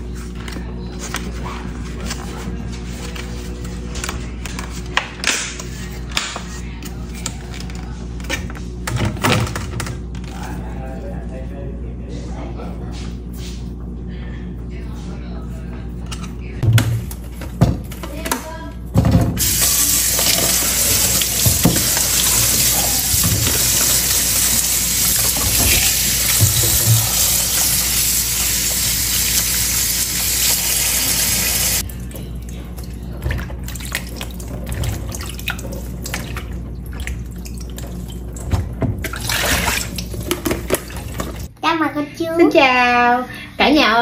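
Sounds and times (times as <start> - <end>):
tap water running into bowl: 19.4 - 31.8
water splashing and draining: 29.3 - 41.5.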